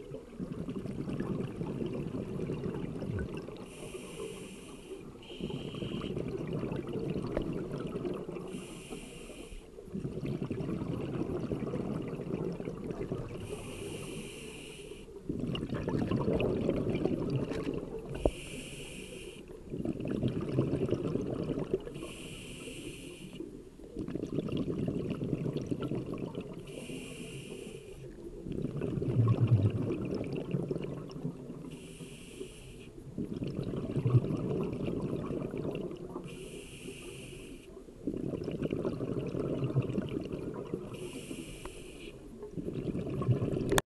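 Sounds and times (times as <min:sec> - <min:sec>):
exhaled bubbles rumbling: 0:00.0 - 0:03.9, 0:04.9 - 0:08.7, 0:09.7 - 0:14.4, 0:15.0 - 0:18.7, 0:19.4 - 0:22.2, 0:23.4 - 0:27.0, 0:28.0 - 0:31.8, 0:33.0 - 0:36.3, 0:37.8 - 0:41.3, 0:42.2 - 0:43.8
regulator hiss on inhale: 0:03.6 - 0:06.2, 0:08.4 - 0:09.8, 0:13.4 - 0:15.2, 0:18.1 - 0:19.6, 0:21.8 - 0:23.6, 0:26.6 - 0:28.2, 0:31.6 - 0:33.0, 0:36.2 - 0:37.9, 0:40.9 - 0:42.4.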